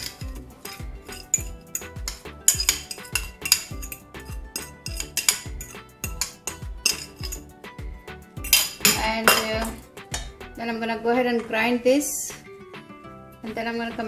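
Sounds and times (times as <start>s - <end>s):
fork clinking on plate: 0.0s - 7.5s
background music with beat: 0.0s - 10.7s, 12.2s - 14.0s.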